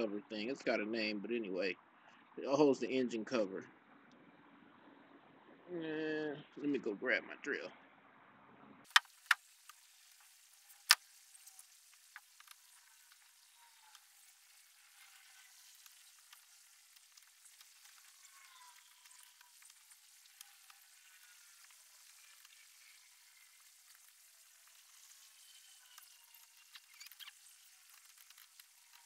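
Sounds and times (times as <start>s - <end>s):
faint steady hiss: 8.9s - 29.0s.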